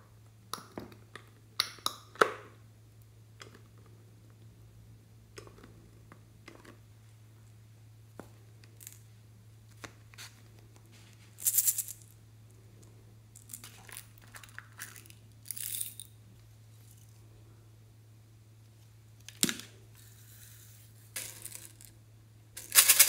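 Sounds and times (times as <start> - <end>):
low steady hum: 0.0 - 23.0
plastic containers rattling: 22.6 - 23.0.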